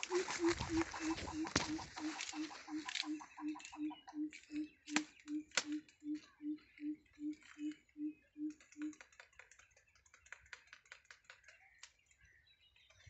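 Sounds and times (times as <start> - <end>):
grass stems snapping: 0.0 - 3.2.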